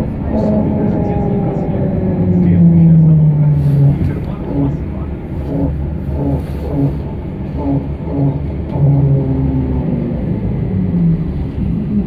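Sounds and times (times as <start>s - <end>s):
muffled voices talking: 0.0s - 8.0s
trolleybus interior rumble: 0.0s - 12.0s.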